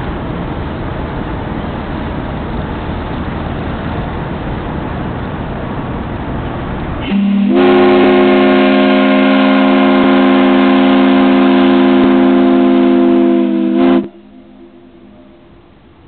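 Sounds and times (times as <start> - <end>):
steam whistle blast: 7.0 - 15.6.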